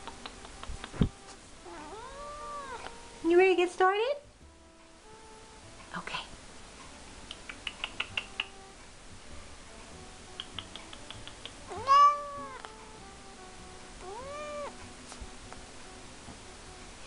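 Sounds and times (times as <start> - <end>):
cat meowing: 1.6 - 3.0, 11.6 - 12.8, 14.0 - 14.8.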